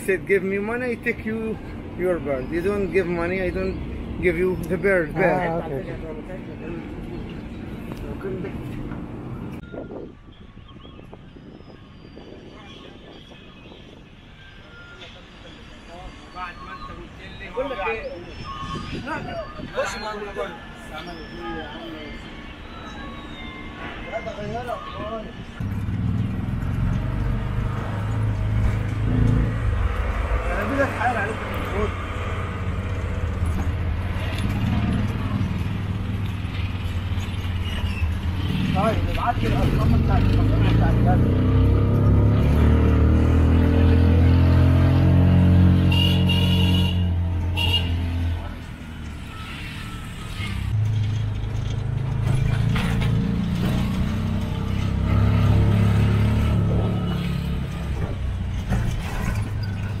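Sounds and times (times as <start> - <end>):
auto-rickshaw engine drone: 20.0 - 60.0
road rattle: 25.3 - 60.0.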